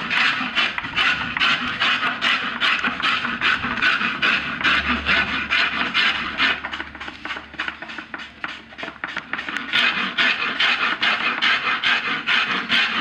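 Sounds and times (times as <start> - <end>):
hand tools rasping wood: 0.0 - 13.0.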